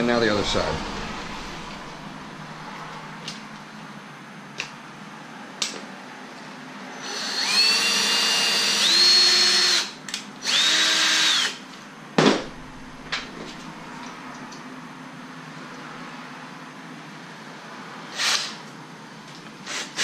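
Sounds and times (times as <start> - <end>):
drill motor whine: 7.0 - 11.6
sharp knock: 12.2 - 13.6.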